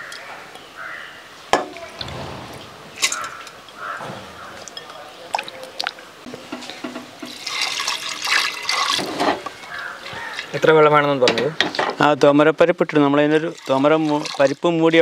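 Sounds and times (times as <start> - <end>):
water pouring into a pot: 7.2 - 10.7, 13.4 - 15.0.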